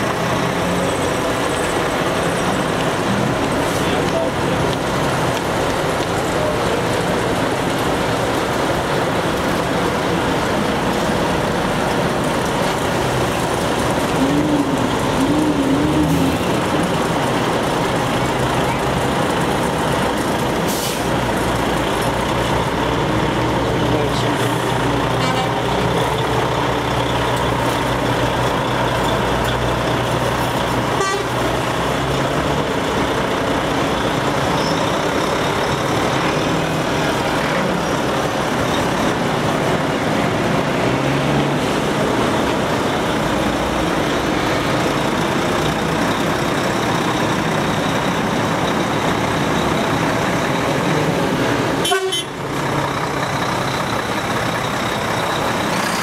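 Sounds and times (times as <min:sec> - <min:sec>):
truck diesel engines: 0:00.0 - 0:56.0
truck horns tooting: 0:25.1 - 0:26.0, 0:30.9 - 0:31.5, 0:51.8 - 0:52.4.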